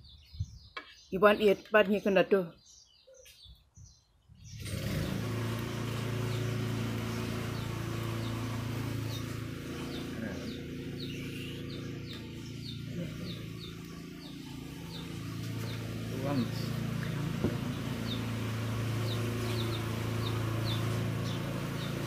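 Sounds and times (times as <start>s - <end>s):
small bird chirping: 0.0s - 22.0s
motor humming: 4.6s - 22.0s.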